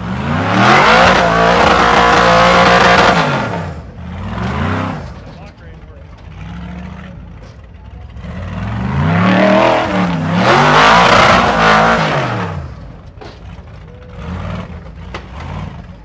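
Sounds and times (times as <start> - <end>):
car engine revving hard: 0.0 - 5.2, 8.1 - 12.8, 14.1 - 15.9.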